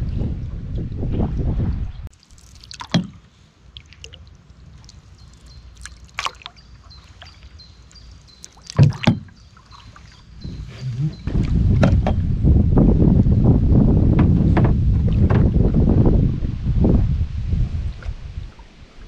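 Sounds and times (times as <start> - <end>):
paddle splashing water: 2.1 - 12.2
paddle knocks: 8.6 - 9.4, 10.5 - 12.3, 14.0 - 15.9.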